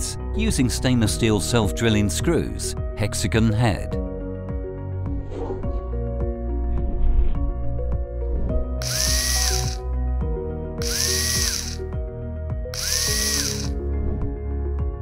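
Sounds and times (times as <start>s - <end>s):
background music: 0.0s - 15.0s
cordless drill whining: 8.8s - 9.8s, 10.8s - 11.9s, 12.7s - 13.8s.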